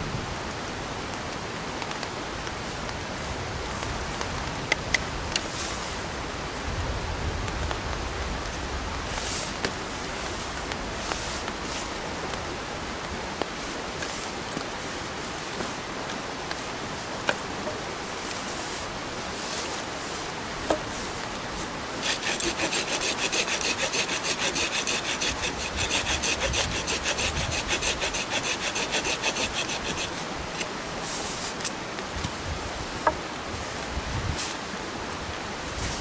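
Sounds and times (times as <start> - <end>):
blade rasping on wood: 22.0 - 30.7.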